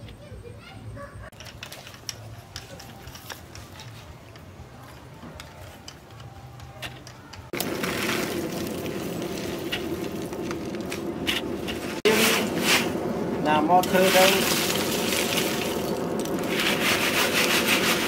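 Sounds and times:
wood shavings clicking and rustling: 1.3s - 12.8s
forge blower whirring hum: 7.5s - 18.0s.

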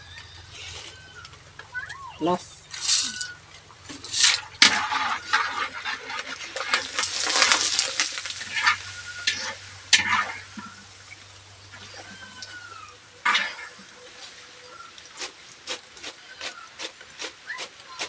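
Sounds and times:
metal spatula scraping pan: 2.6s - 10.9s, 13.2s - 13.9s
food frying in hot oil: 4.0s - 18.0s.

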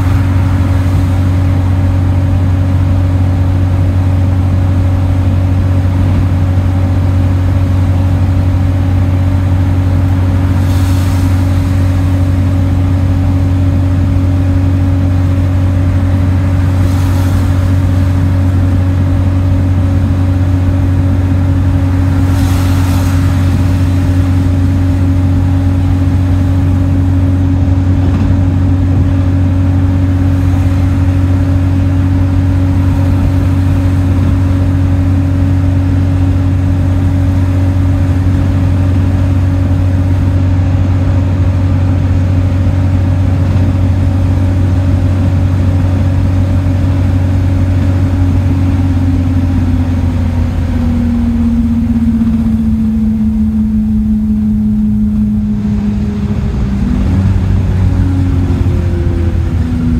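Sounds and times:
passing traffic whoosh: 0.0s - 4.3s, 8.9s - 36.6s
bus interior drone: 0.0s - 59.9s.

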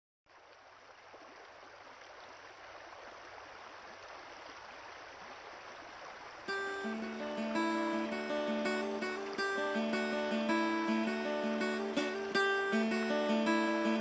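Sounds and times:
stream water rushing: 0.3s - 14.0s.

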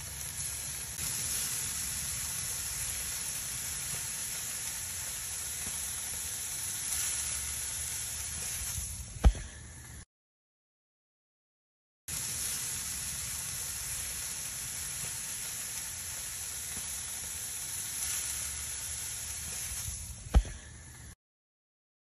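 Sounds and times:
charcoal hissing and crackling: 0.0s - 10.1s, 12.1s - 21.2s
thump: 9.2s - 9.6s, 20.3s - 20.7s.

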